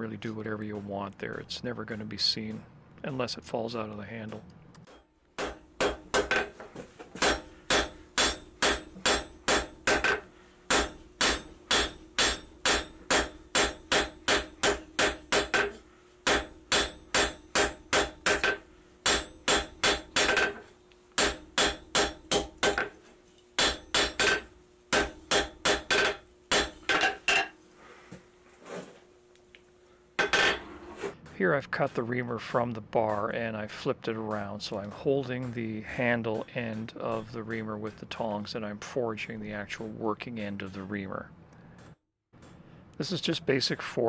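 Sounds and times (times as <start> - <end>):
hammer striking steel on an anvil: 4.3 - 6.6, 7.2 - 20.6, 21.2 - 23.0, 23.6 - 27.6, 35.2 - 38.1.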